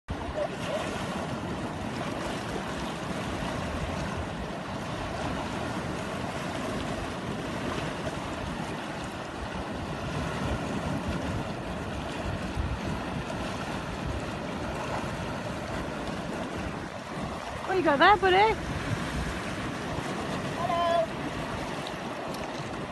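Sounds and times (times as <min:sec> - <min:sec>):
sea waves on rocky shore: 0:00.1 - 0:22.9
wind rumbling on microphone: 0:00.1 - 0:22.9.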